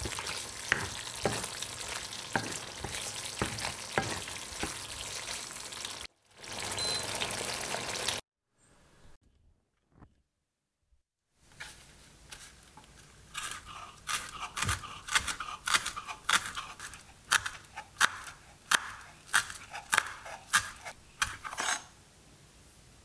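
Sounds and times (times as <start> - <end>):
knife chopping on wooden board: 0.0 - 1.6, 2.2 - 4.8, 13.4 - 21.8.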